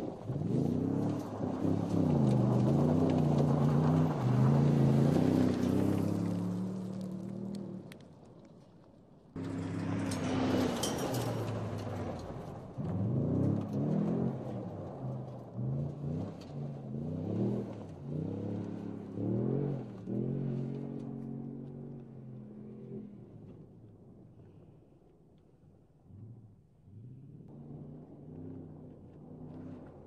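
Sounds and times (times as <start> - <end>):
pickup engine accelerating: 0.0 - 8.3, 9.4 - 30.0
tyres throwing up dirt: 0.0 - 8.3, 9.4 - 22.1.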